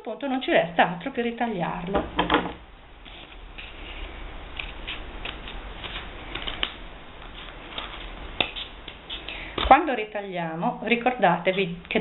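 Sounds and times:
scissors snipping paper: 0:04.5 - 0:06.8.

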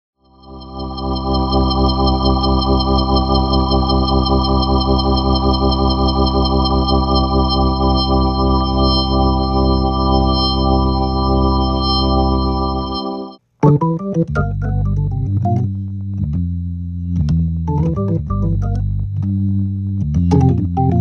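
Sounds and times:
organ chord through rotating speaker: 0:00.3 - 0:15.1.

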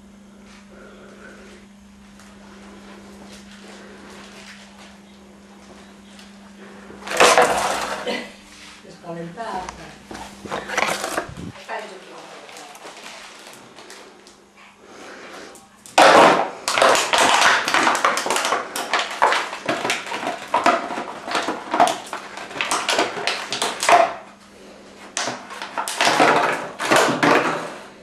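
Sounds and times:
plastic bottle crunching: 0:10.6 - 0:11.6, 0:16.0 - 0:24.2.

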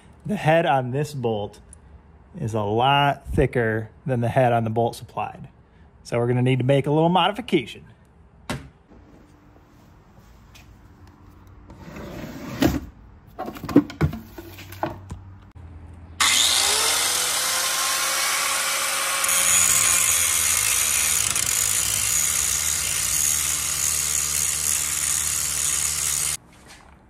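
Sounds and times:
wooden drawer knocks and clunks: 0:12.5 - 0:15.2
angle grinder whining: 0:16.2 - 0:26.4
grinder grinding metal bolt: 0:16.2 - 0:26.4.

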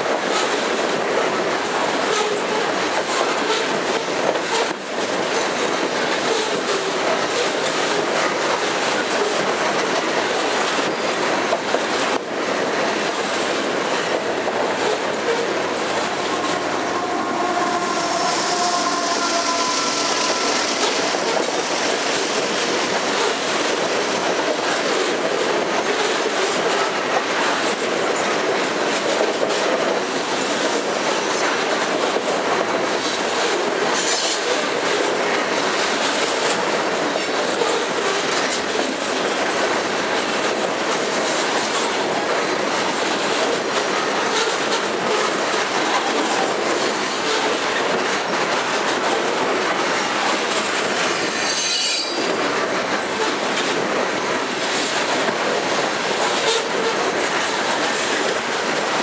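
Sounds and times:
train wheels rumbling on rail: 0:00.0 - 0:59.0
wheel squeal: 0:17.1 - 0:22.2, 0:51.2 - 0:52.3.

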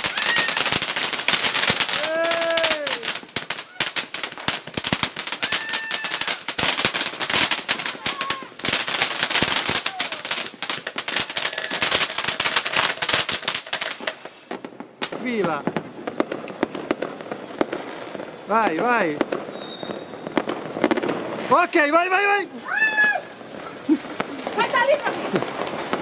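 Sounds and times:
firework crackling: 0:00.0 - 0:26.0
person crying out: 0:01.9 - 0:03.9, 0:05.4 - 0:06.4, 0:08.0 - 0:08.5, 0:09.8 - 0:10.3, 0:22.6 - 0:23.3.

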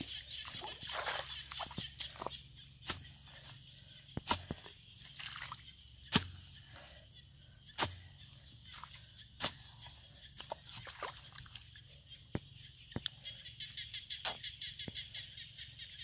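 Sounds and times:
hoe chopping into wet mud: 0:04.2 - 0:06.6, 0:07.8 - 0:08.0.

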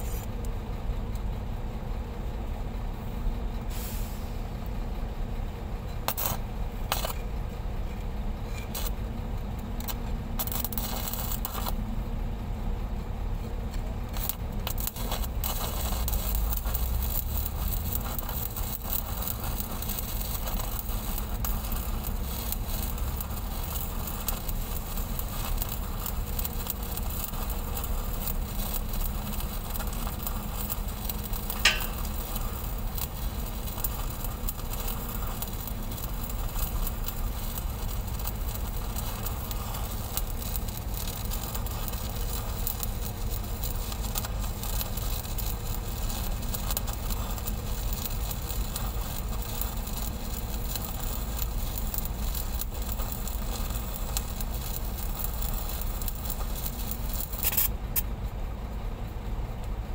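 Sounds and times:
welding arc crackling hiss: 0:00.0 - 0:00.6, 0:03.0 - 0:12.6, 0:13.3 - 0:58.4
sharp high ping: 0:31.6 - 0:32.0.

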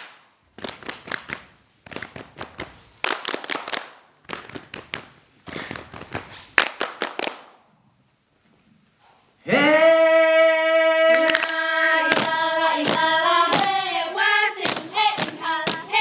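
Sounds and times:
hands clapping and body slapping: 0:00.0 - 0:07.6, 0:11.2 - 0:13.8, 0:14.6 - 0:15.9.

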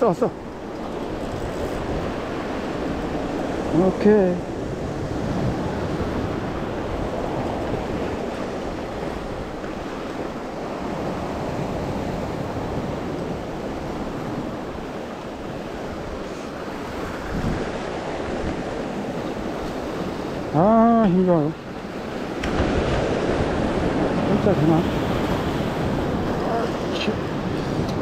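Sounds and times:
wind buffeting microphone: 0:00.4 - 0:21.0, 0:21.6 - 0:28.0
surf breaking over rocks: 0:15.5 - 0:28.0.

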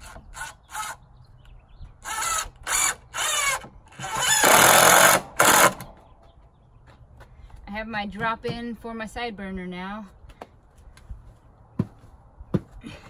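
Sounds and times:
cordless drill driving screws: 0:00.0 - 0:01.0, 0:02.0 - 0:05.9.

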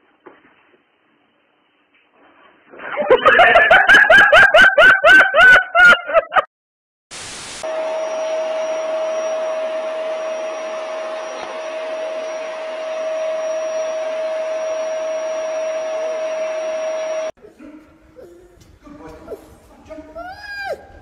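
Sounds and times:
appliance motor whirring: 0:08.3 - 0:17.3.

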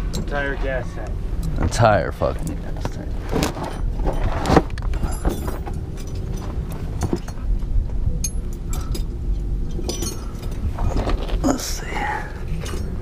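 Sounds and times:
steady low rumble: 0:00.0 - 0:13.0
metallic wrench clinks: 0:09.7 - 0:10.6.

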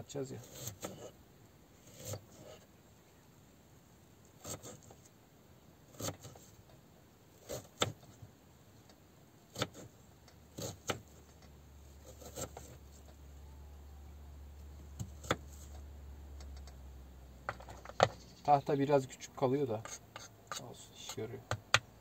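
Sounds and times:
knife chopping on wooden board: 0:06.0 - 0:06.4, 0:10.6 - 0:11.0, 0:12.0 - 0:12.8, 0:15.0 - 0:15.7.

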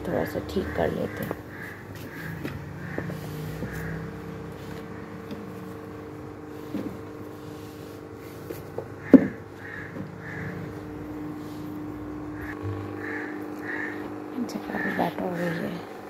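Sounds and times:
steady hum: 0:00.0 - 0:16.0
books knocking and shuffling on shelf: 0:06.5 - 0:10.2.

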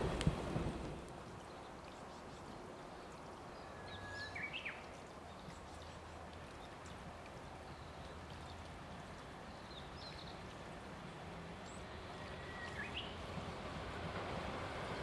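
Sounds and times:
electric train rumble: 0:11.9 - 0:15.0.

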